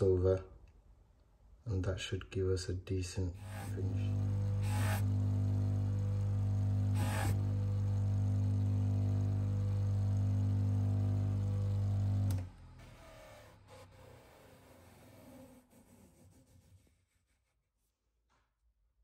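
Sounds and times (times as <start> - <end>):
polishing motor humming: 3.4 - 13.4.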